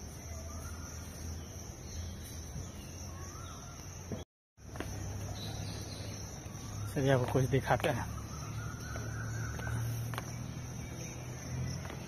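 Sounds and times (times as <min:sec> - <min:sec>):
high insect drone: 0:00.0 - 0:12.0
faint bird calls: 0:05.3 - 0:11.1.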